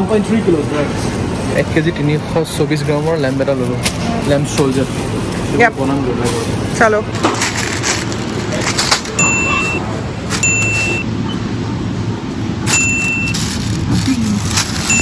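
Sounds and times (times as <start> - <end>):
short electronic beeps: 9.2 - 9.8, 10.4 - 11.4, 12.7 - 13.4.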